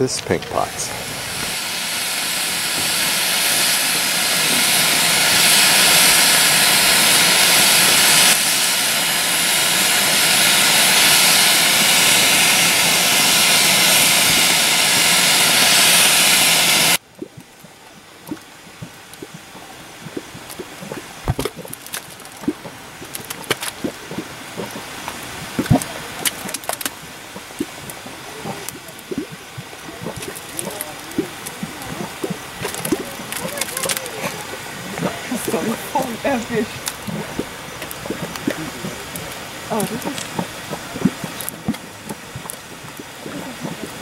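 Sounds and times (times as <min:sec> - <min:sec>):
steam vent hissing: 0:00.0 - 0:21.8, 0:22.4 - 0:44.0
bubbling mud pops: 0:17.0 - 0:44.0.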